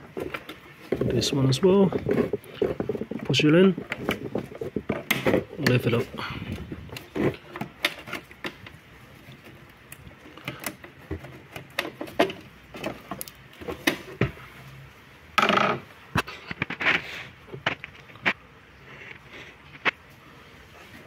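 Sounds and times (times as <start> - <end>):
plastic clatter: 0.0 - 14.4.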